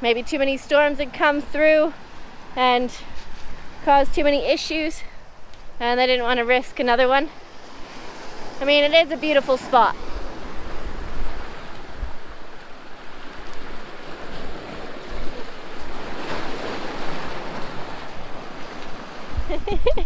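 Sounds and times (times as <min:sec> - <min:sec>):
wind gusts on microphone: 0:00.0 - 0:20.0
waves breaking over rocks: 0:07.3 - 0:19.7.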